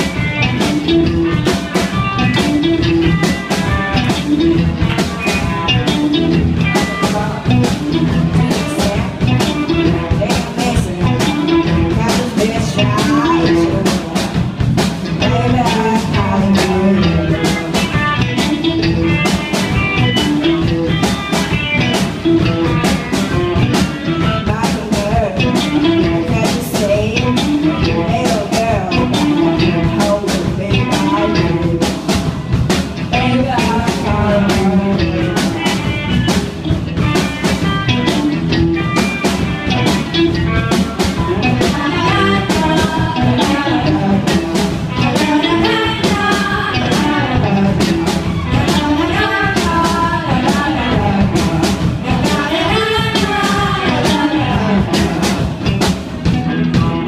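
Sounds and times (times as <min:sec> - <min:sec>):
person singing: 0:00.0 - 0:14.5, 0:15.1 - 0:55.8
drum kit steady beat: 0:00.0 - 0:57.0
electric guitars: 0:00.0 - 0:57.0.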